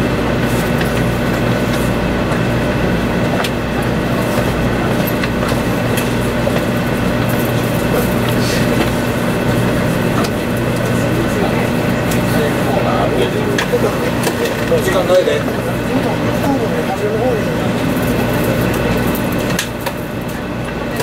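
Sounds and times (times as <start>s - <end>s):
train wheels and air rumble: 0.0s - 16.4s
constant low hum: 0.0s - 21.0s.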